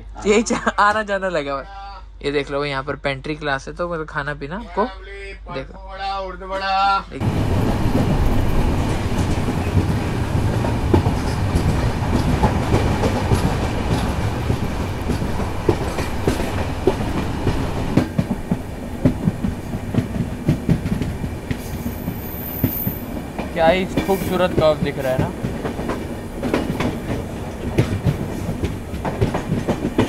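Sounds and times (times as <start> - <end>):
train rushing noise: 7.2 - 30.0
wheels clattering over rails: 7.2 - 30.0.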